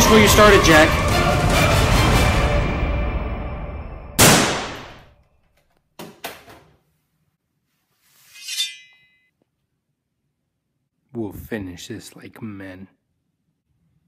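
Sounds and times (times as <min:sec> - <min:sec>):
metallic sword-drawing shing: 0:08.3 - 0:09.3.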